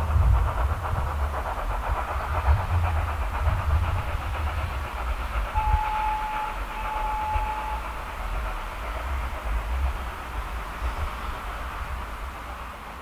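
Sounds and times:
steam locomotive exhaust beats: 0.0s - 13.0s
steam whistle blasts: 5.6s - 8.0s.

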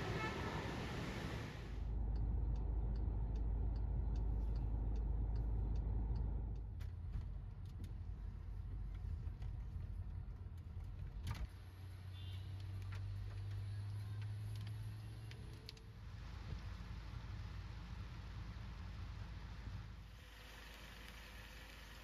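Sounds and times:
car engine rumble: 0.0s - 12.0s.

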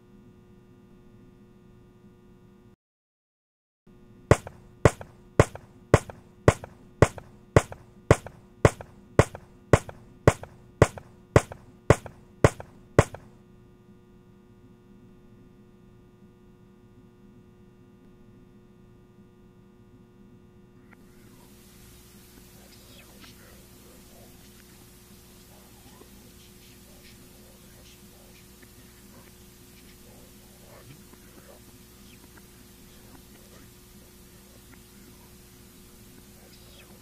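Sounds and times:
low steady hum: 0.0s - 2.8s, 3.9s - 37.0s
taps on a tabletop: 4.3s - 13.3s.

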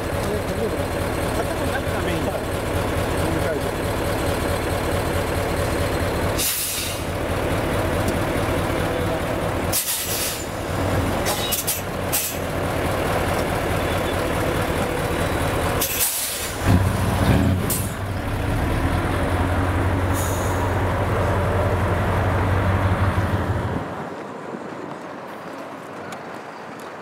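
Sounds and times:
truck diesel engine running: 0.0s - 24.0s
air brake hisses: 6.4s - 7.1s, 9.7s - 10.6s, 15.8s - 16.6s, 20.1s - 20.7s.

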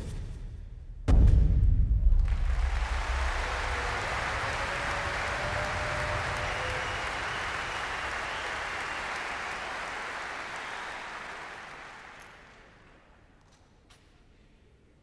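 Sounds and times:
arena audience applauding: 2.2s - 13.3s.

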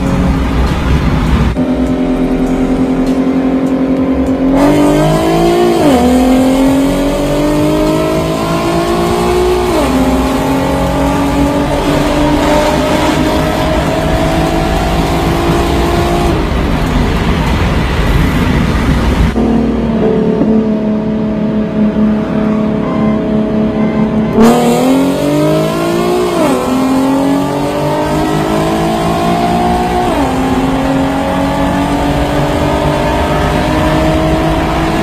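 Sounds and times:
car engine accelerating: 0.0s - 35.0s.

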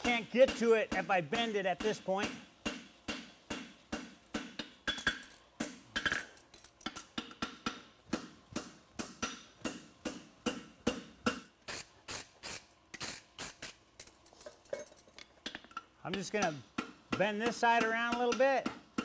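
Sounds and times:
hammer striking metal on anvil: 0.0s - 6.3s, 7.0s - 11.5s, 15.5s - 19.0s.

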